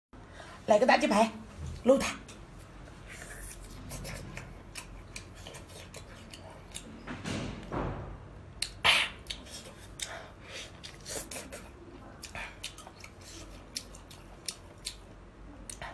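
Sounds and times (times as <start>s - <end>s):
chewing and sucking mouth noises: 2.6s - 7.0s, 8.6s - 15.9s.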